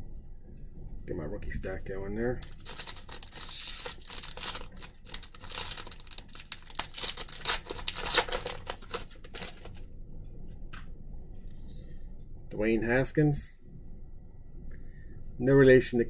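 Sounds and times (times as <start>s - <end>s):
foil wrapper tearing and crinkling: 2.4s - 9.8s.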